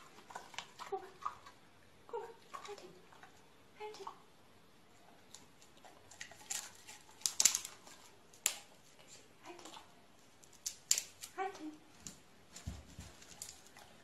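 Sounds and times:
dog claws clicking on hard floor: 6.1s - 8.8s, 10.4s - 11.4s, 12.0s - 14.0s.

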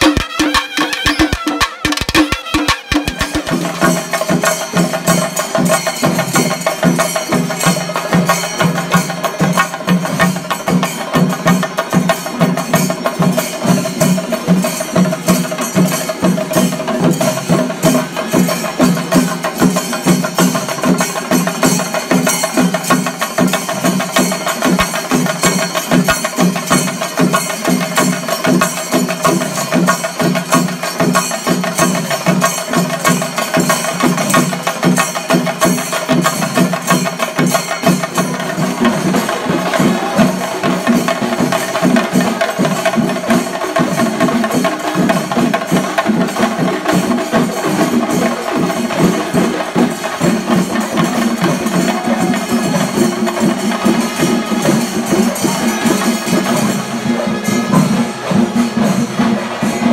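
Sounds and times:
horn band music: 0.0s - 3.9s
drums beaten rapidly with sticks: 0.0s - 59.9s.

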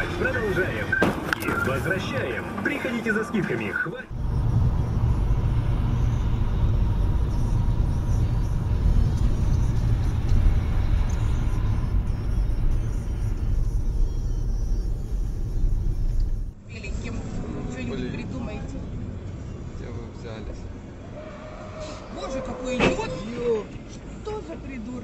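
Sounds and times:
car engine and tyre rumble: 0.0s - 25.0s.

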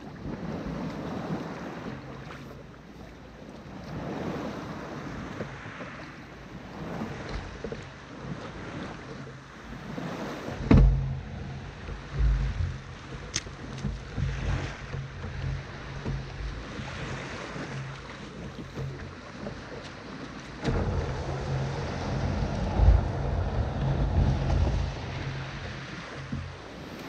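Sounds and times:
wind buffeting microphone: 0.0s - 2.4s, 3.6s - 27.0s
sea waves: 0.0s - 27.0s
steady low hum: 20.6s - 26.1s.

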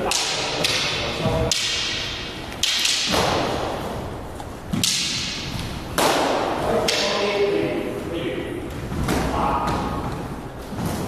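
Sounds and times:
sparring sticks cracking: 0.0s - 7.4s.

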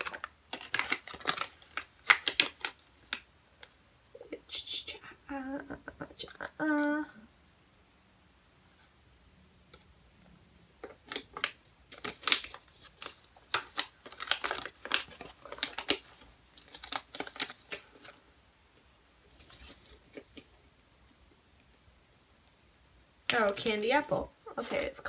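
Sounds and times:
plastic packaging crackling: 0.0s - 3.8s, 10.8s - 18.3s, 23.2s - 25.0s.

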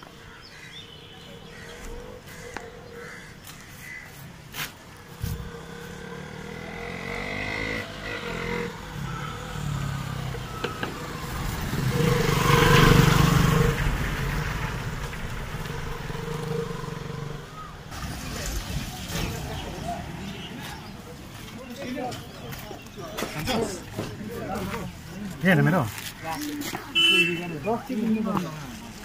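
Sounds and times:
motorcycle engine running: 5.1s - 18.2s.

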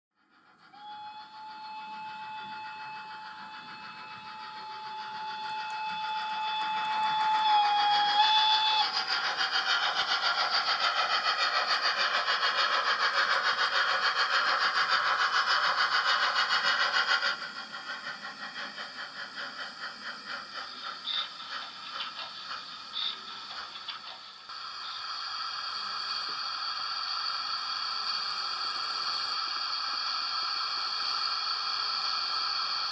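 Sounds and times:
steam locomotive chuffing: 0.2s - 32.9s
steam whistle: 0.6s - 9.0s.

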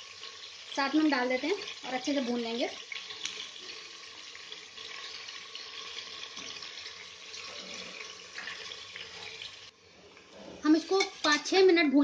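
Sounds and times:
meat sizzling in hot oil: 0.0s - 12.0s
spoon stirring in pot: 10.2s - 11.5s.

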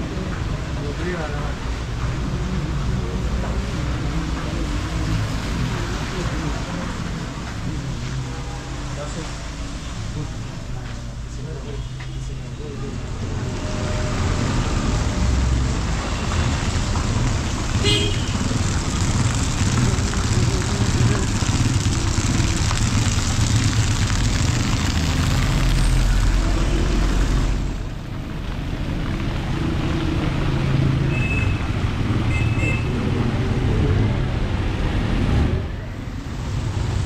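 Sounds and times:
tyres on wet tarmac: 0.0s - 37.0s
car engines running: 12.4s - 31.0s
deep engine rumble: 18.4s - 31.0s.

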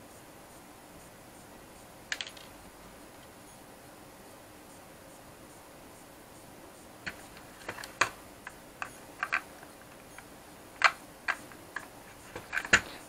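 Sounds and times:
plastic parts clicking: 7.1s - 13.0s.

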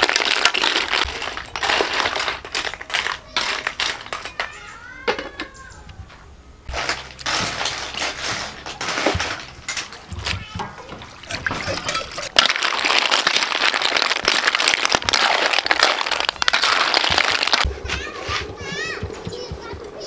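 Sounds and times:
metal ladle stirring: 6.7s - 17.7s
water splashing: 6.7s - 20.0s.

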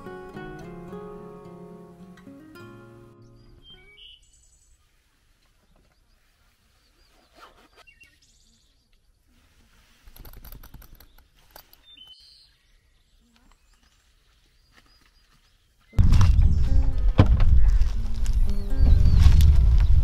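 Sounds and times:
faint bird chirps: 3.2s - 9.3s, 10.8s - 16.0s.

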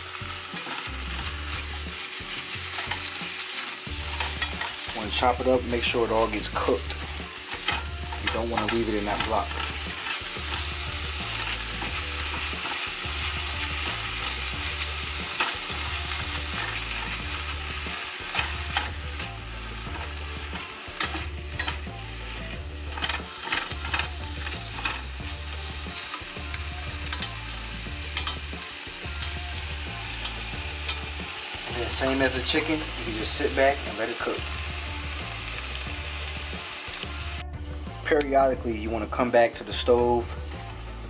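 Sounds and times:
meat sizzling in a skillet: 0.0s - 41.0s
spatula scraping a pan: 0.3s - 29.4s.

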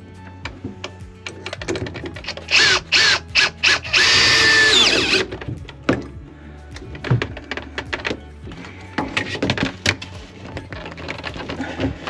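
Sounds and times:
cordless drill whining: 2.1s - 5.4s.

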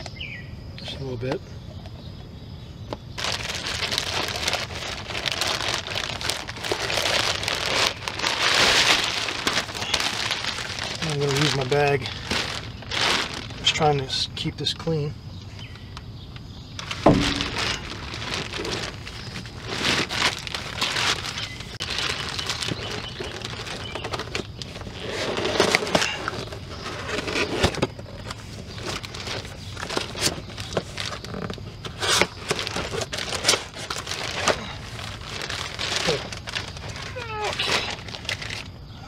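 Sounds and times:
plastic bag crinkling: 3.2s - 14.3s, 16.8s - 38.8s
thump: 17.0s - 17.8s.

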